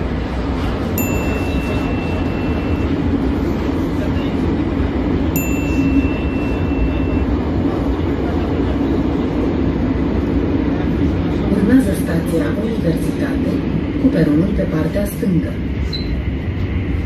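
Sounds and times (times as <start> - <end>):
train rumble and rail noise: 0.0 - 17.0
thin high tone: 1.0 - 3.0, 5.4 - 7.3.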